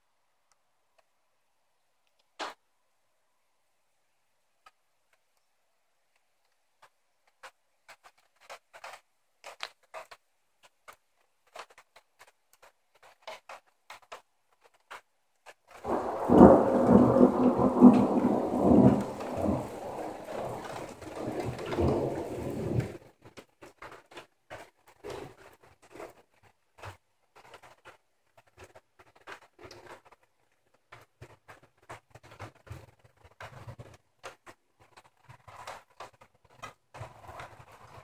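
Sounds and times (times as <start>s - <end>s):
thunder rumbling: 15.8s - 23.0s.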